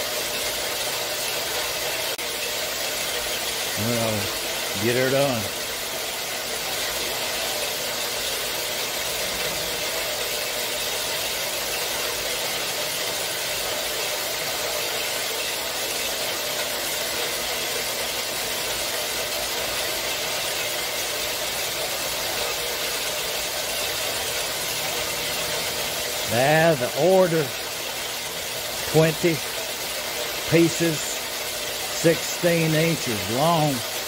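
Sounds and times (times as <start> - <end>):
bandsaw cutting steel: 22.0 - 29.8, 30.4 - 33.8.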